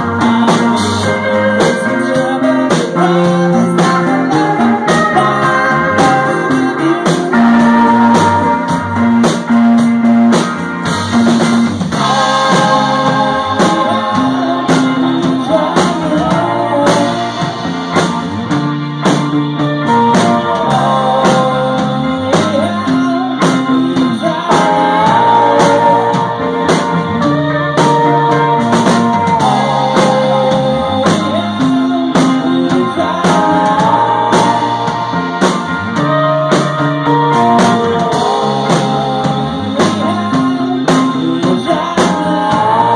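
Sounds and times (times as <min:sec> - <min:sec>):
bass line: 0:00.0 - 0:42.9
drum kit beat: 0:00.0 - 0:42.9
electric guitar: 0:00.0 - 0:42.9.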